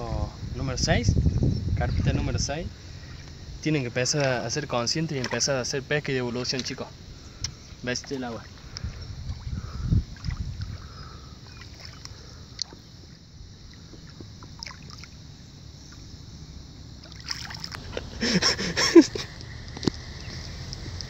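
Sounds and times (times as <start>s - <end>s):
water splashing and lapping: 5.0s - 5.7s, 6.3s - 16.1s, 17.0s - 21.0s.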